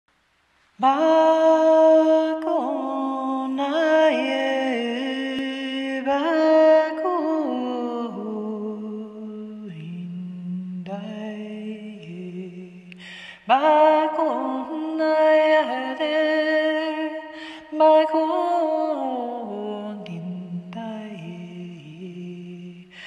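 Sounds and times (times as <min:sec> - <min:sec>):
woman singing unaccompanied chant: 0:00.8 - 0:23.0
woman breathing: 0:12.9 - 0:13.5, 0:17.3 - 0:17.7.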